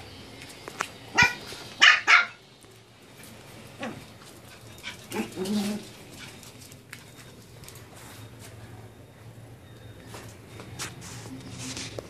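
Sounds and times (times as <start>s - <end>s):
puppy barking: 1.1s - 2.4s.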